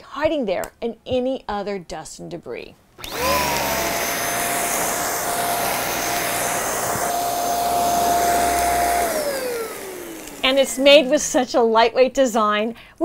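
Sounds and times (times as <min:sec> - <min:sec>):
rushing airflow: 0:03.0 - 0:10.8
vacuum motor whine: 0:03.0 - 0:11.0.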